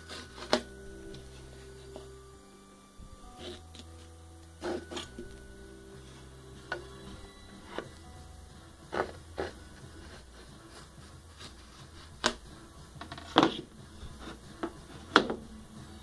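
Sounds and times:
wood scraping on wood: 0.0 - 2.1, 3.2 - 15.5
faint low hum: 0.0 - 16.0
wood knocking on wood: 11.0 - 15.5.

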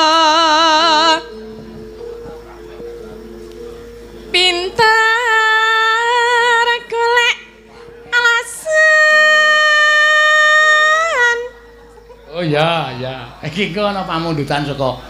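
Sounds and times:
woman singing with vibrato: 0.0 - 1.4, 4.3 - 11.6.

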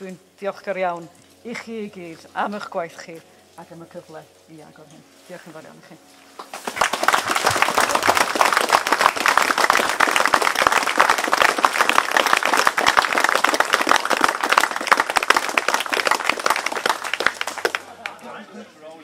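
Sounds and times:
crowd applauding: 6.4 - 18.4.

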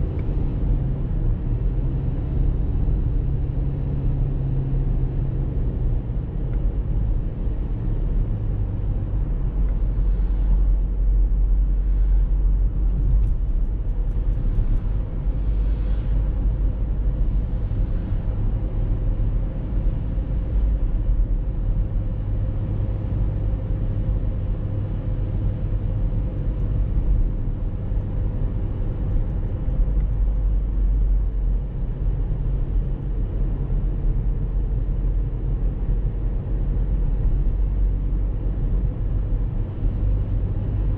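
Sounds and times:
car driving on paved road: 0.0 - 40.9.

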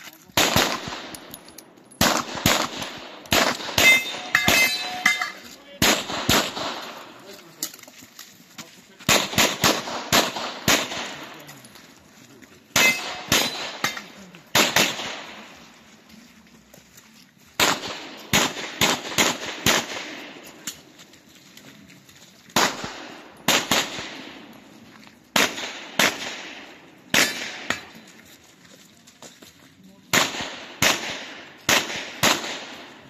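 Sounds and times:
handgun shots with echo: 12.8 - 15.3, 25.4 - 27.9.

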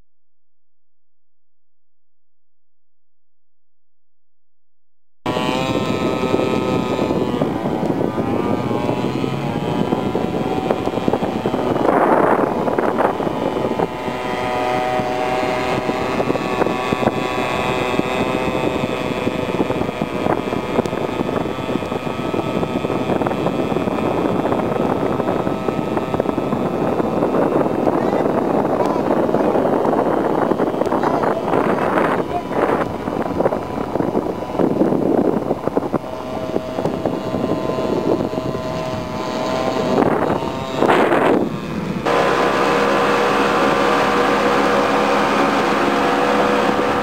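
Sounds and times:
model boat motor whining: 5.3 - 47.0
water and wind hiss: 5.3 - 47.0.

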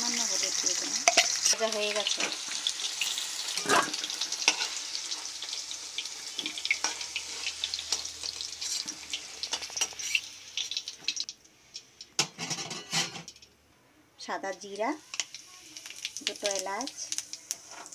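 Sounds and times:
potato wedges sizzling in oil: 0.0 - 12.2, 14.5 - 17.9
metal spatula scraping a pan: 1.0 - 10.3, 12.2 - 13.3.

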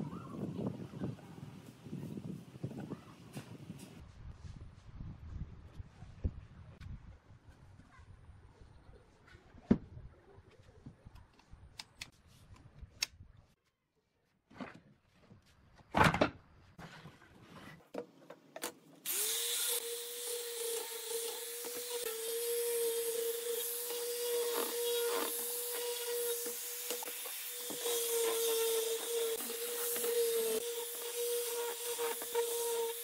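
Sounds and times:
angle grinder sanding wood: 19.1 - 33.0.

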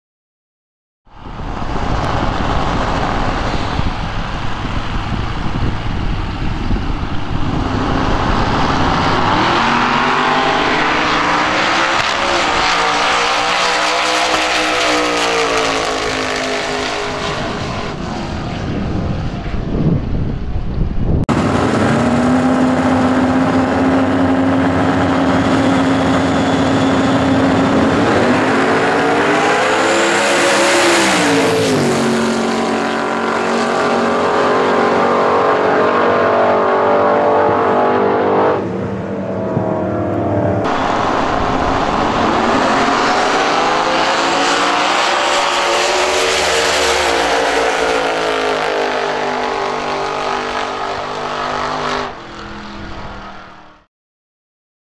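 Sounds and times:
racing car engine revving: 1.7 - 19.7, 21.3 - 53.6.

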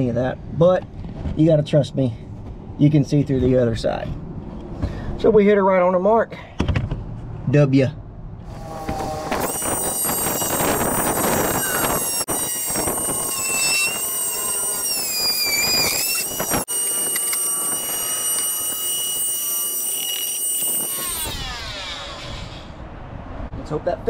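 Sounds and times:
rotary tool cutting plastic: 8.7 - 22.8.

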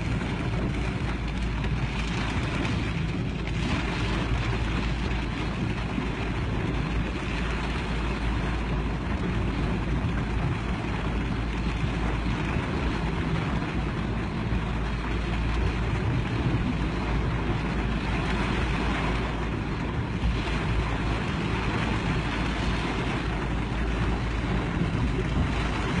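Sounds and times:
floodwater rushing: 0.0 - 26.0
wind rumble on microphone: 0.0 - 26.0.

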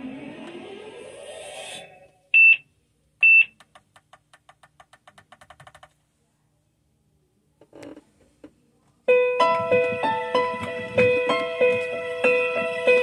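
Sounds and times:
music: 9.1 - 13.0.

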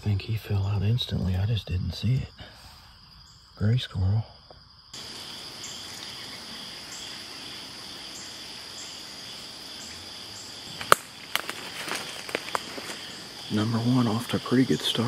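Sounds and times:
crickets trilling: 0.0 - 15.0
insect chirp: 0.0 - 15.0
sharp clicks: 10.8 - 11.6.

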